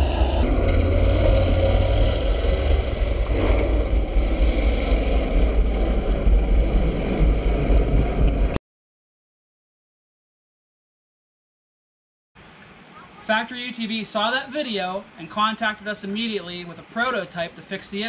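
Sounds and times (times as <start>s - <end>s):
engine running under load: 0.0s - 8.6s
rushing noise: 0.0s - 8.6s.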